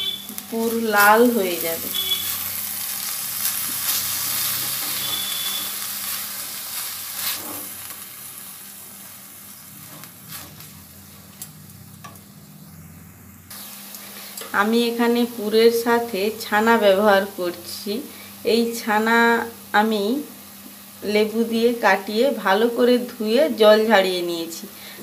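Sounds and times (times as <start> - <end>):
soft sizzle: 0.0 - 25.0
spatula scraping a pan: 6.8 - 7.9.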